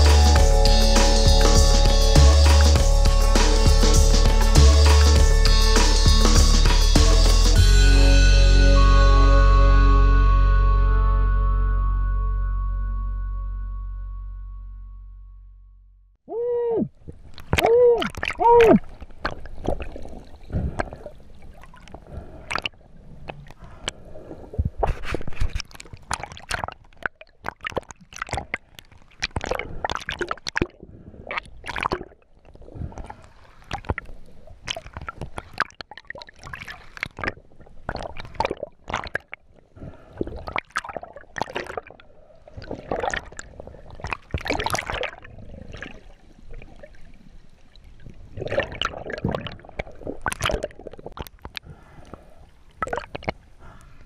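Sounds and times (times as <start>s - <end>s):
water sloshing and gurgling: 16.9s - 54.0s.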